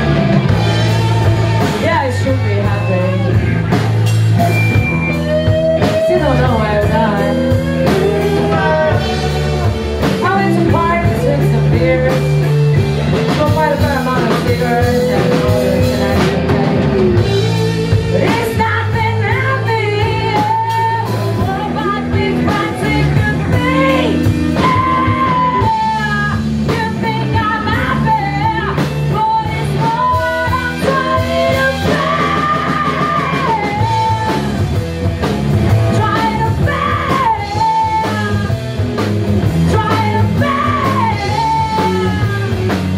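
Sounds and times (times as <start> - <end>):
person singing lead vocal: 0.0 - 3.6, 5.8 - 34.7, 35.8 - 38.8, 39.4 - 42.9
bass guitar: 0.0 - 42.9
drum kit: 0.0 - 42.9
electric guitar: 0.0 - 42.9.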